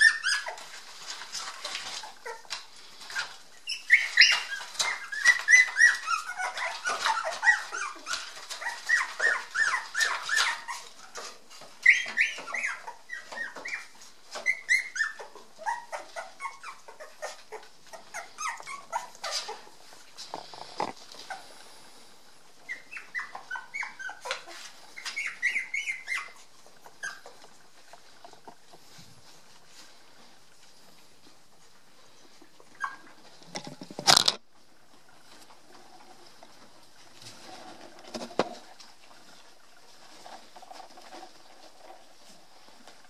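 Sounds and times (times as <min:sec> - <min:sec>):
puppies squeaking and whimpering: 0:00.0 - 0:29.9, 0:32.3 - 0:34.4.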